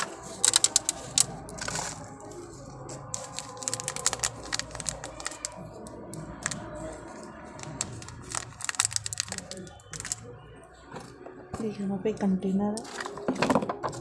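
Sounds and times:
plastic cups clicking: 0.0s - 2.4s, 3.0s - 10.3s, 12.8s - 14.0s.

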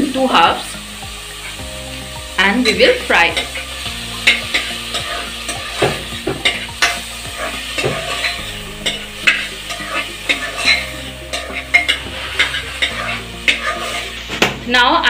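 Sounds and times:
food sizzling in oil: 0.0s - 15.0s
spoon scraping a pot: 7.4s - 14.2s.

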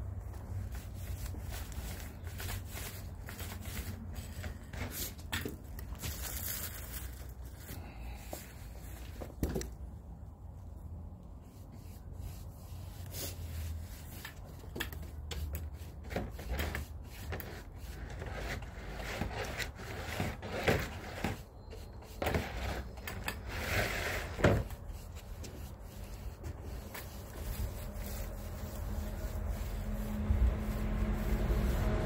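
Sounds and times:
applicator scraping wooden decking: 13.0s - 32.0s
low steady rumble: 24.9s - 32.0s.

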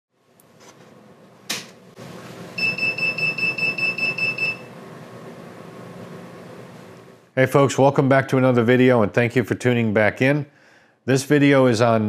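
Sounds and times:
fast high beeps: 2.6s - 4.7s.

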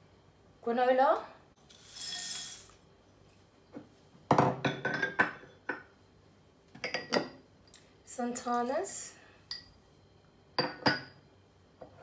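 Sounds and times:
glass bowls clinking: 4.4s - 5.9s, 6.8s - 7.4s, 9.5s - 9.8s, 10.6s - 11.2s.

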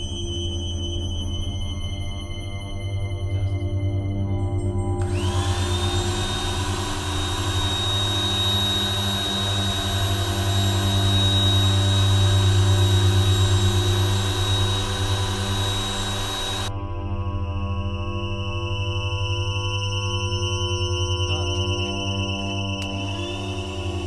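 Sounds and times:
low steady drone: 0.0s - 24.0s
electric blower motor whine: 5.0s - 16.7s, 17.9s - 24.0s.

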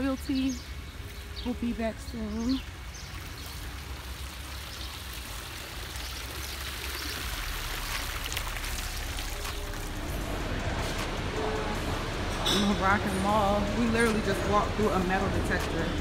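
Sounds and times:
fountain splashing into basin: 0.8s - 11.1s.

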